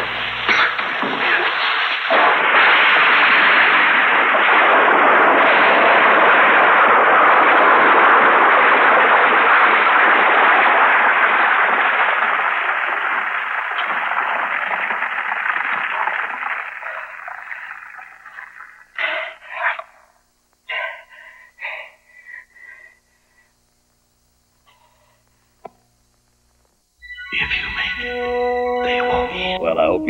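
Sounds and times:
explosion rumble: 0:00.8 - 0:17.0.

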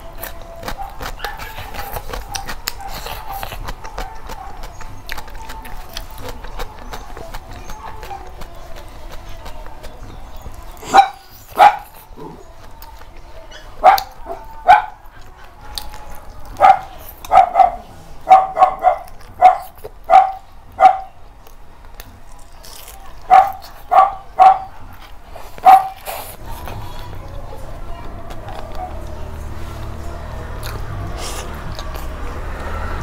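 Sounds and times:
dog barking: 0:00.6 - 0:04.8, 0:10.8 - 0:12.0, 0:13.6 - 0:15.0, 0:16.6 - 0:21.2, 0:23.3 - 0:24.8, 0:25.6 - 0:26.1.

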